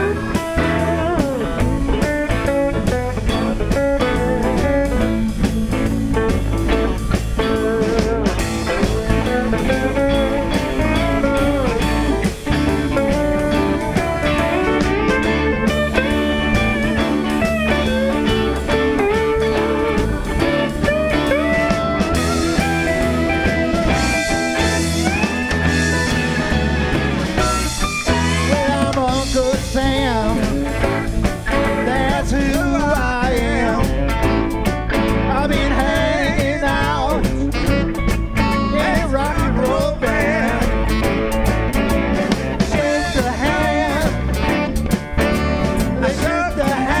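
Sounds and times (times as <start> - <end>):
man singing: 0.0 - 6.2, 7.3 - 15.5, 28.1 - 34.4, 35.1 - 47.0
bass guitar: 0.0 - 47.0
drum kit: 0.0 - 47.0
electric guitars: 0.0 - 47.0.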